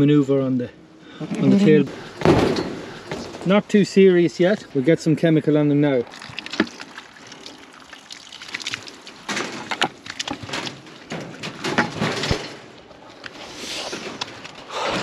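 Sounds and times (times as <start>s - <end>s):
liquid sloshing and splashing: 6.0s - 13.2s
crackly handling noise: 8.6s - 14.7s.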